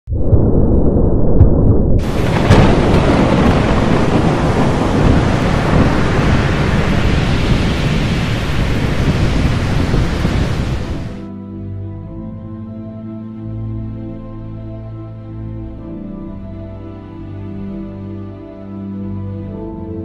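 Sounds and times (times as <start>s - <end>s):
low rumble of thunder: 0.1s - 11.3s
sharp thunderclap: 0.3s - 11.3s
heavy rain: 2.0s - 11.3s.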